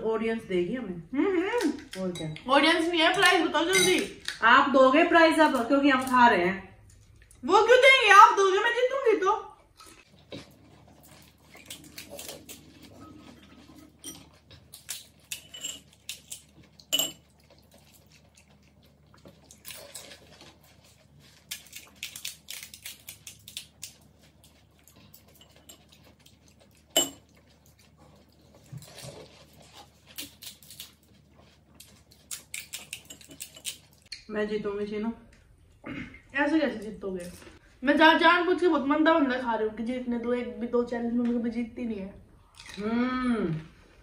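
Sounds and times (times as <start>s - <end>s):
spoons clinking on glass bowls: 3.7s - 4.1s, 15.3s - 15.9s, 16.9s - 17.2s, 27.0s - 27.2s.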